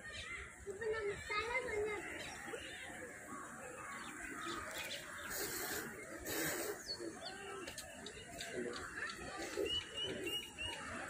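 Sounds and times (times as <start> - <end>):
small birds chirping: 0.0 - 11.0
brief rustling hisses: 5.1 - 7.0.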